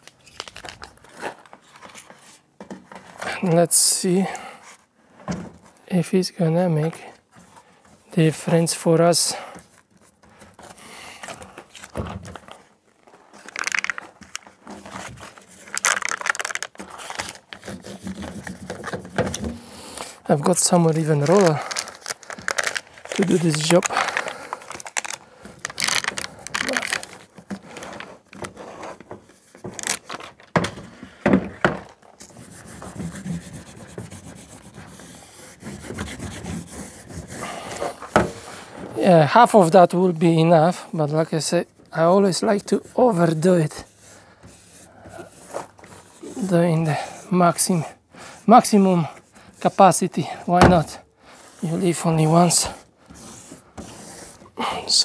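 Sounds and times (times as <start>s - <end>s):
foil mat crinkling: 0.0s - 2.2s, 11.6s - 19.0s, 20.4s - 30.5s.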